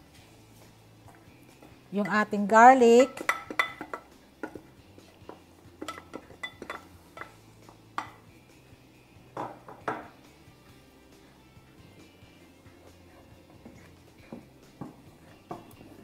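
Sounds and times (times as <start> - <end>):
wooden spoon knocking and scraping: 3.1 - 8.3, 9.4 - 10.2, 13.4 - 16.0.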